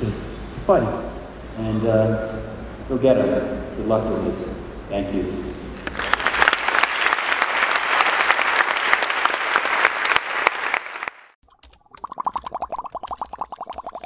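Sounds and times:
audience applauding: 5.8s - 11.4s.

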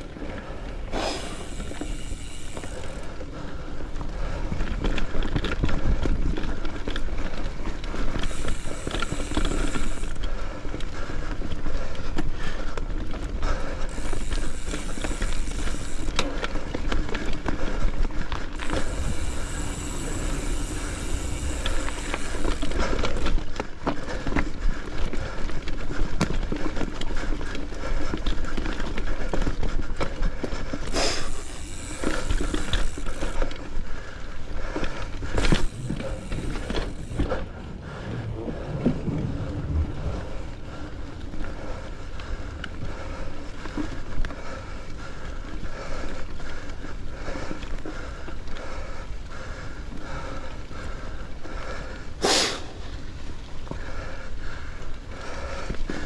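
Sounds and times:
bike chain and frame rattling: 0.0s - 51.9s
bike tyres on dirt: 0.0s - 56.0s
wind on microphone: 35.4s - 43.1s.

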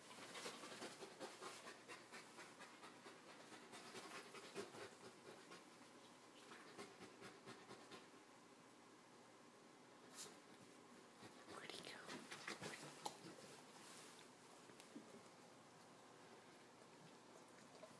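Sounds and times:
dogs panting: 0.0s - 5.8s, 6.5s - 8.1s, 11.2s - 13.7s
soft rustles of fur and fabric: 10.1s - 16.6s.

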